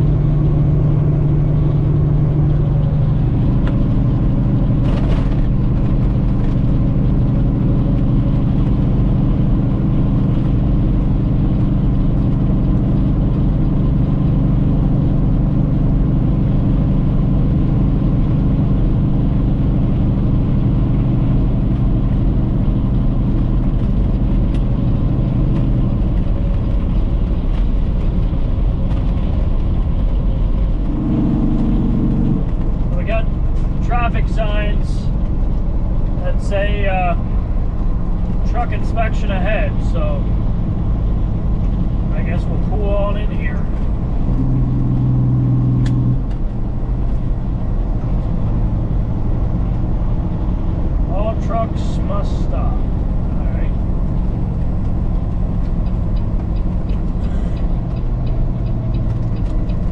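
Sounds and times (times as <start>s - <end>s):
diesel truck engine droning: 0.0s - 59.9s
higher engine note: 29.0s - 59.9s.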